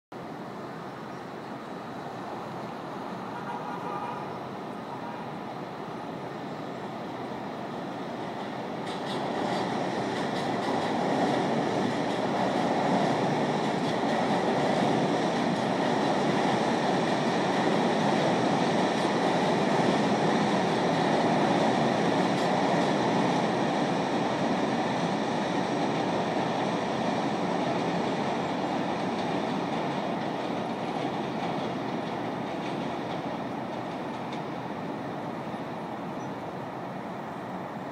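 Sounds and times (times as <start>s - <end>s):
road traffic hum: 0.1s - 37.9s
train rumbling over steel bridge: 0.1s - 37.9s.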